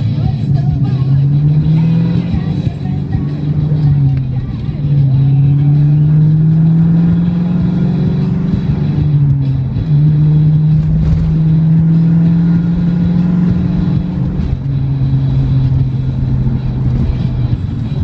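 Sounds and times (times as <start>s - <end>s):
car engine and tyre drone: 0.0s - 18.0s.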